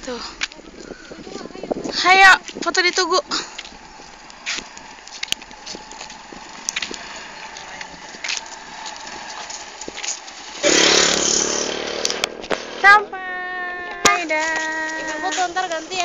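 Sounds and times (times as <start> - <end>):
small engine running: 5.4 - 13.1.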